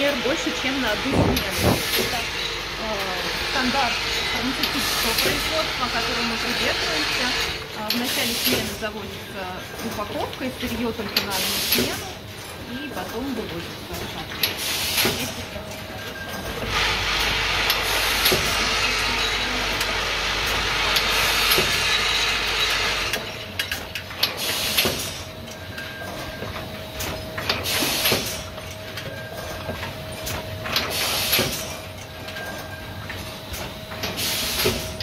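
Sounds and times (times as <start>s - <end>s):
machinery hum: 0.0s - 35.0s
loud machine hiss: 1.0s - 8.8s, 11.4s - 12.0s, 16.7s - 23.2s, 27.6s - 28.4s, 30.9s - 31.7s, 34.1s - 35.0s.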